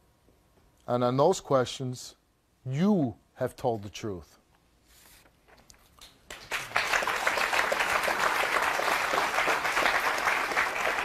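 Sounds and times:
audience applause: 6.3 - 11.0.

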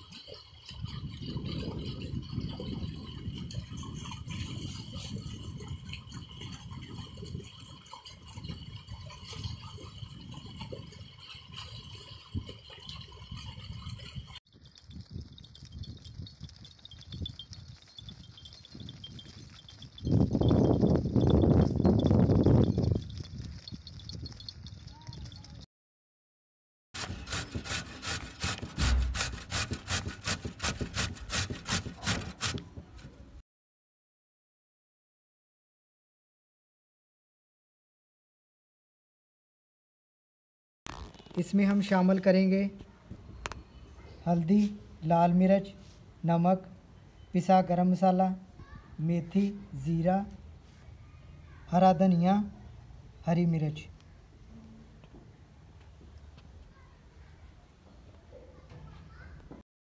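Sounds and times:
radish grating on metal grater: 27.0 - 32.6.

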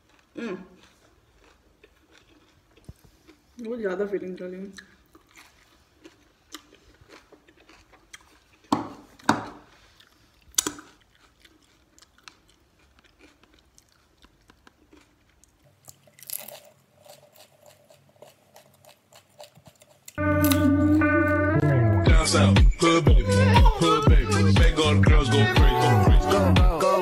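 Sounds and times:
crunchy chewing: 0.0 - 3.6, 4.8 - 20.6
loud crunchy bites: 15.9 - 20.7.

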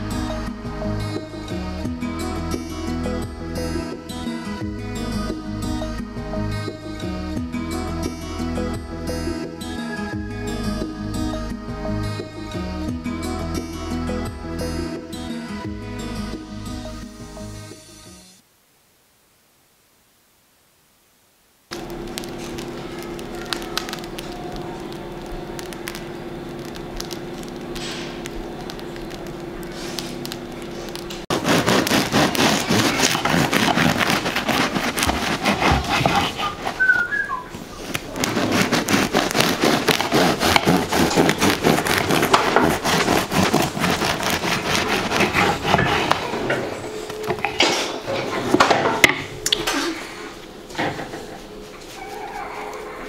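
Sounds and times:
steady low hum: 21.7 - 36.8, 37.4 - 53.0
bread crust crackling under knife: 21.7 - 37.2, 37.8 - 46.4.

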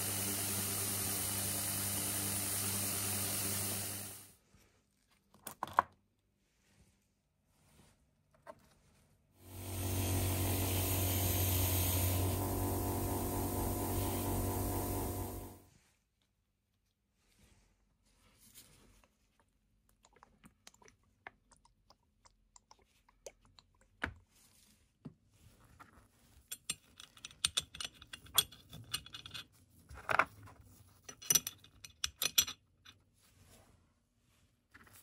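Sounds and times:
metal tool parts clinking: 26.5 - 29.5, 31.1 - 33.0.

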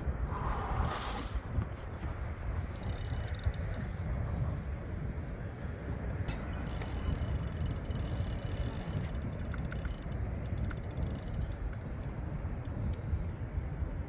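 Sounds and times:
steady low rumble: 0.0 - 14.0
fishing reel clicking and ratcheting: 2.6 - 3.9, 6.3 - 12.2.

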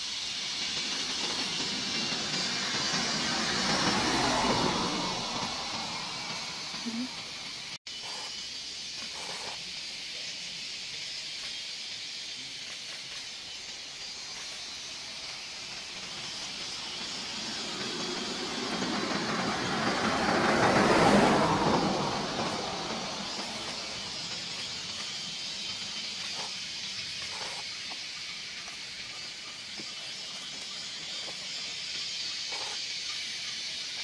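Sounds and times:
steady high hiss: 0.0 - 34.0
vehicle passing on road: 0.1 - 7.8, 14.1 - 26.6.

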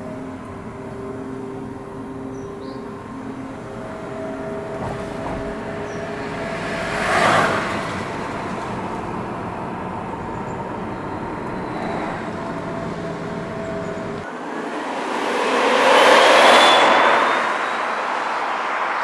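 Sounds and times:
pedestrian warning tones: 0.0 - 19.0
tyre and road noise: 0.0 - 19.0
brief rushing swell: 14.2 - 19.0.

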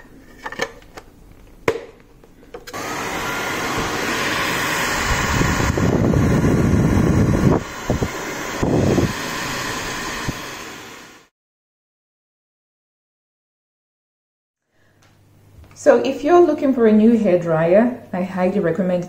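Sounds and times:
hair dryer running: 2.6 - 11.3.

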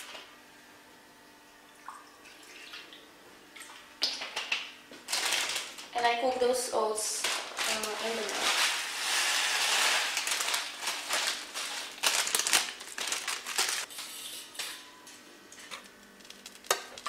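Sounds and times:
plastic bag crinkling: 5.0 - 6.2, 7.2 - 14.1
oats pouring rustling hiss: 7.8 - 12.0.

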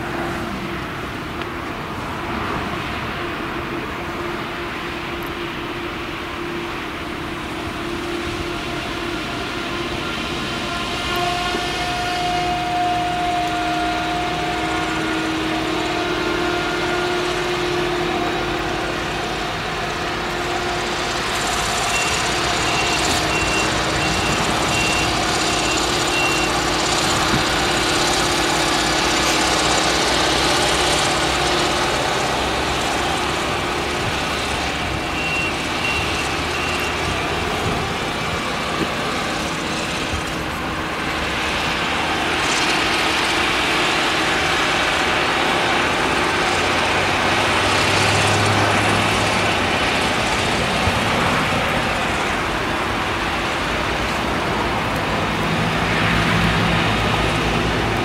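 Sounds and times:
harvester engine running under load: 0.0 - 58.0
tractor engine: 0.0 - 58.0
short high beep: 21.9 - 26.6, 35.2 - 37.0.

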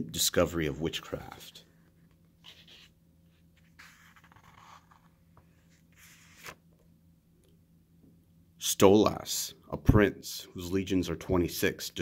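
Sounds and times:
book pages rustling: 1.8 - 6.8.

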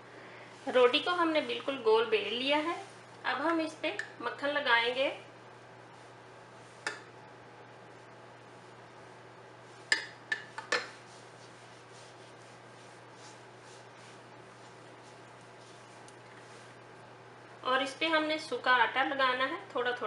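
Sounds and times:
fingers rubbing dough: 10.8 - 16.8.

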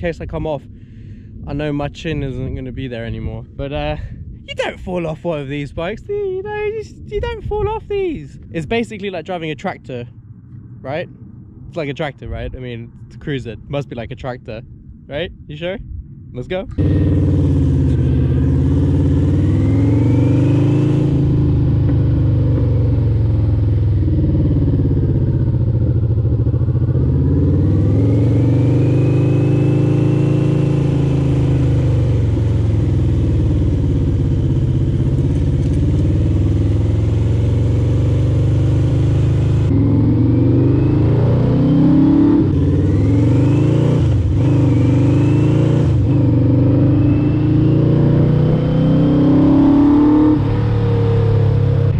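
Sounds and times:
motorcycle engine revving: 16.7 - 51.9.

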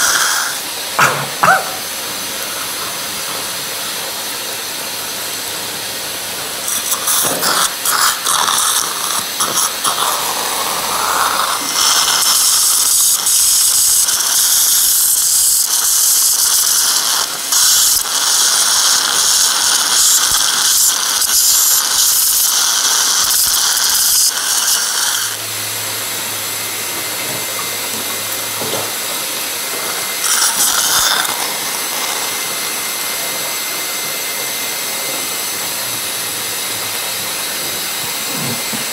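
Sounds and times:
dental drill hissing: 0.0 - 38.9.

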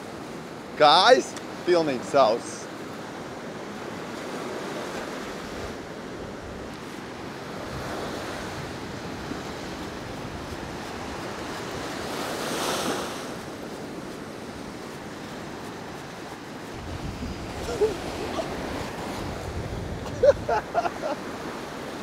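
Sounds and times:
sea surf washing in: 0.0 - 22.0
wind buffeting microphone: 13.3 - 21.0.

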